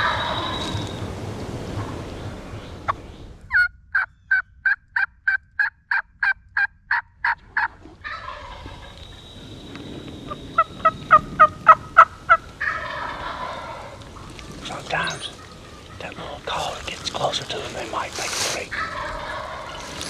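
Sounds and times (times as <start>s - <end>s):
turkey call yelps: 0.0s - 1.0s, 3.5s - 9.2s, 10.3s - 17.0s, 18.6s - 20.0s.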